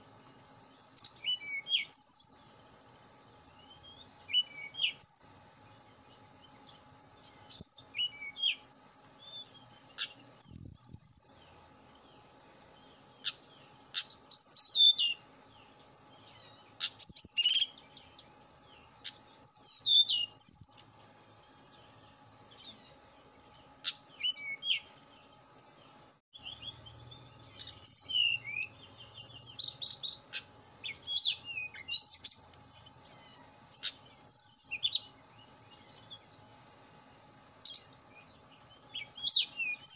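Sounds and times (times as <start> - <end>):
bird singing whistled notes: 0.4 - 20.9, 21.5 - 39.9.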